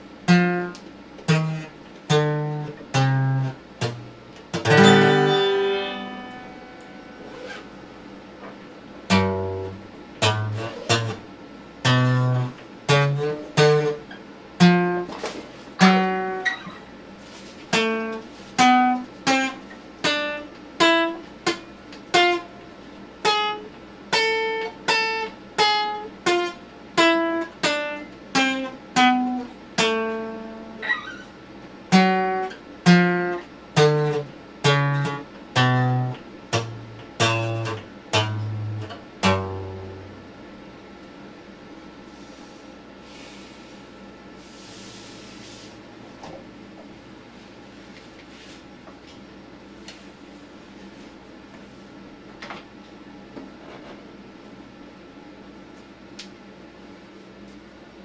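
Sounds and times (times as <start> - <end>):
acoustic guitar picked notes: 0.2 - 15.2, 15.8 - 17.0, 17.7 - 40.4.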